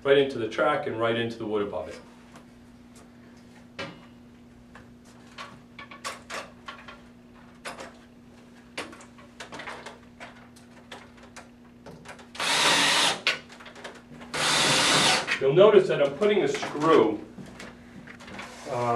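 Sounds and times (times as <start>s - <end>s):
steady low hum: 0.0s - 18.9s
power drill driving screw: 12.4s - 13.4s, 14.3s - 15.4s.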